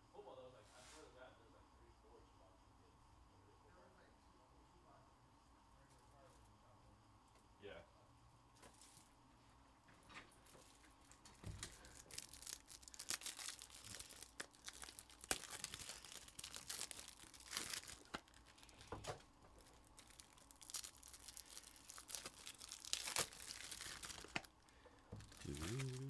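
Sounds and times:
plastic wrapping crinkling and tearing: 11.4s - 26.0s.

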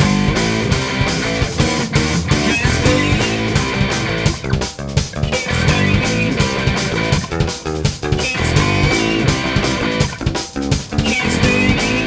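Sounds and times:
bass guitar: 0.0s - 12.0s
drum kit beat with cymbals: 0.0s - 12.0s
electric guitar: 0.0s - 12.0s.

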